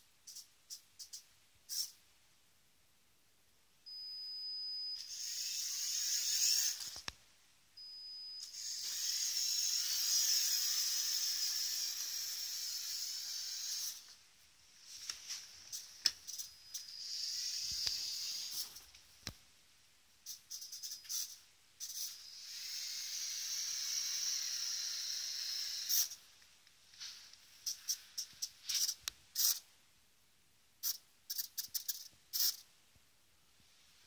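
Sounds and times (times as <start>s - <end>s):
toy car motor whining: 5.0s - 7.0s, 8.4s - 14.1s, 15.8s - 18.8s, 20.3s - 26.2s.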